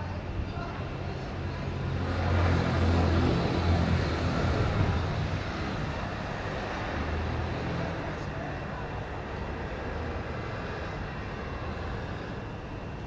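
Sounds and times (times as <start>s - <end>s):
vehicle engine passing: 1.7s - 8.2s.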